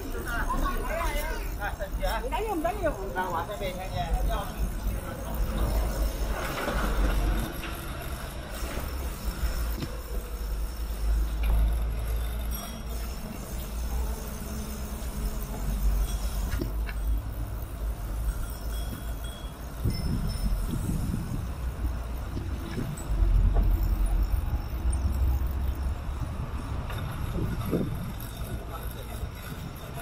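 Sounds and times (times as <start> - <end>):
bicycle tyres rolling on pavement: 0.0 - 30.0
wind buffeting microphone: 19.7 - 24.6, 26.0 - 30.0.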